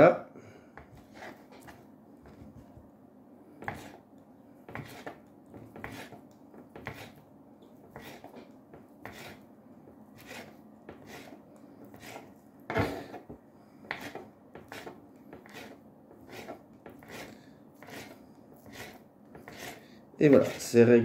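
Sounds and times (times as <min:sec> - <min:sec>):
knife slicing cheese: 0:04.7 - 0:07.2, 0:08.0 - 0:09.4, 0:10.2 - 0:13.2, 0:13.9 - 0:20.8.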